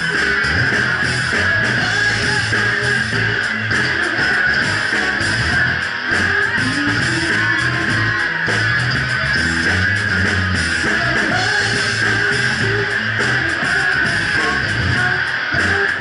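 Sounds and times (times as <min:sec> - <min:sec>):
bass guitar: 0:00.0 - 0:16.0
drum kit: 0:00.0 - 0:16.0
electric guitar: 0:00.0 - 0:16.0
woman singing: 0:01.7 - 0:08.5, 0:10.8 - 0:16.0.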